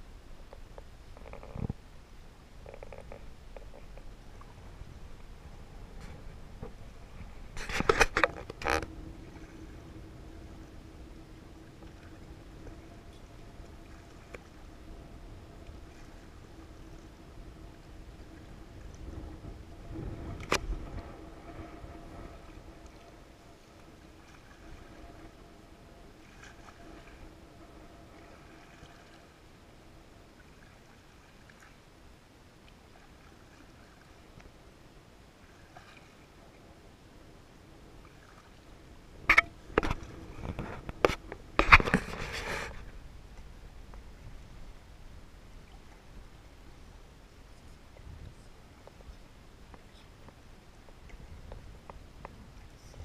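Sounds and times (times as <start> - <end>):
paddle splashing in water: 20.3 - 31.8, 35.4 - 36.6.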